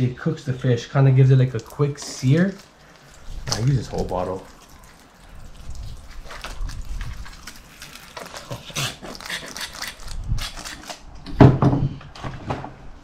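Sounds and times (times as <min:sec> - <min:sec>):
squeeze bottle squirting: 0:01.5 - 0:11.0.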